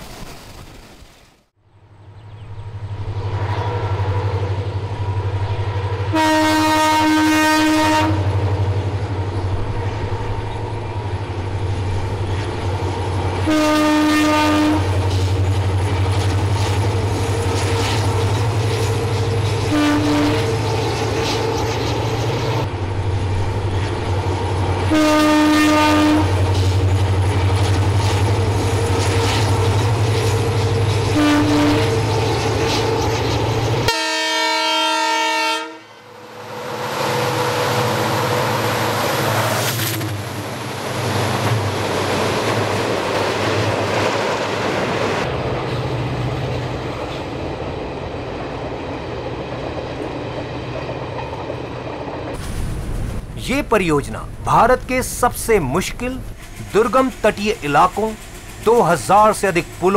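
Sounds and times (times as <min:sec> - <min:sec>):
diesel locomotive rumbling: 0:01.6 - 0:59.9
locomotive horn blasts: 0:06.0 - 0:08.4, 0:13.4 - 0:15.0, 0:19.6 - 0:20.6, 0:24.9 - 0:26.5, 0:31.1 - 0:32.1, 0:33.9 - 0:36.1.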